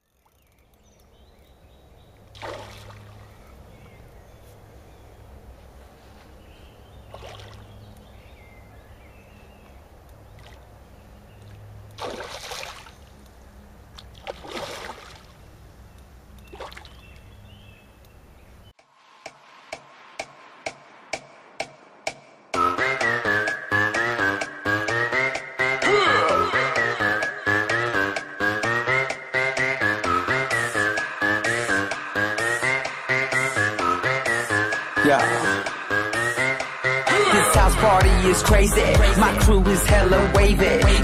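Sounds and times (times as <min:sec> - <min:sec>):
steady low hum: 0:00.5 - 0:18.8
fish splashing in pond: 0:02.1 - 0:03.5, 0:07.0 - 0:07.8, 0:11.5 - 0:13.2, 0:14.0 - 0:15.4, 0:16.5 - 0:17.0
electronic music with ticking beat: 0:19.2 - 0:41.0.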